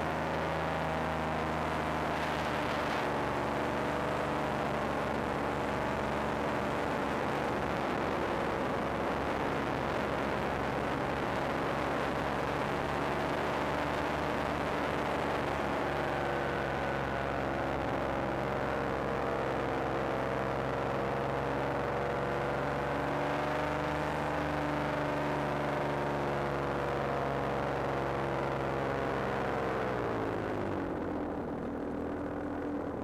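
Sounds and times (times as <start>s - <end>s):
paramotor engine and propeller: 0.0s - 33.0s.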